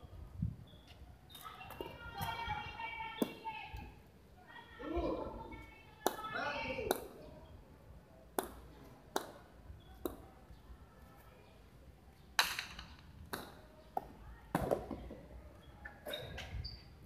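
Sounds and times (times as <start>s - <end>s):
ball cracking against concrete walls: 3.2s - 3.5s, 6.0s - 7.2s, 8.3s - 10.4s, 12.3s - 15.4s.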